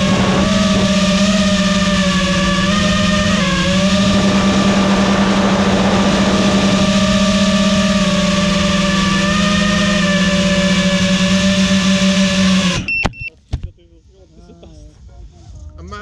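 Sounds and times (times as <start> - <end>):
drone motors buzzing: 0.0 - 13.3
rush of air: 3.9 - 7.6.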